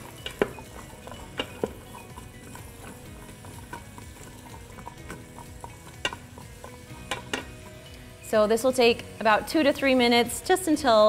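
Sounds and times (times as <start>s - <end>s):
spoon scraping and clinking pot: 0.0s - 8.0s
vegetables sizzling in butter: 0.0s - 11.0s.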